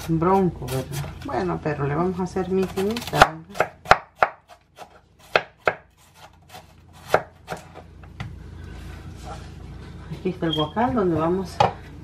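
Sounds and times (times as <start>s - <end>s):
knife cutting on wooden board: 2.6s - 7.8s.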